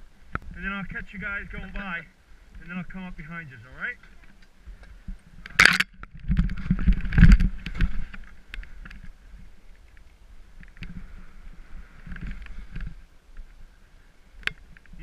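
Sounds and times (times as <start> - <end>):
branches scraping past camera: 5.2 - 13.1.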